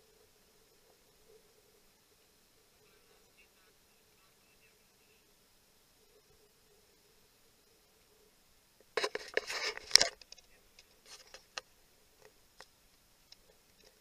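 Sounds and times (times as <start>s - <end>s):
camera handling clicks and rustles: 9.0s - 10.5s.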